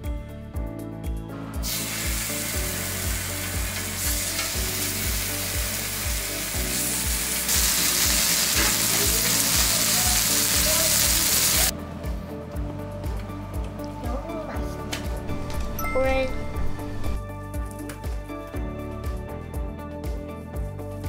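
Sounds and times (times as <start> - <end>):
pork sizzling on griddle: 1.6 - 11.7.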